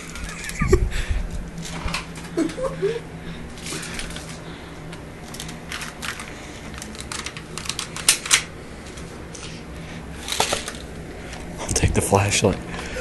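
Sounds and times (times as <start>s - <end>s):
plastic toy guns clicking and rattling: 5.3s - 8.5s, 10.3s - 10.8s.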